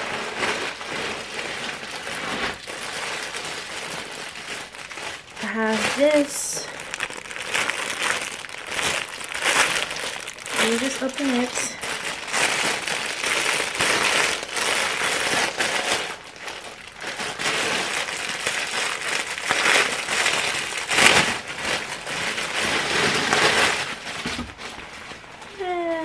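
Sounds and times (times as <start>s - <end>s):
plastic garment bag crinkling: 0.0s - 26.0s.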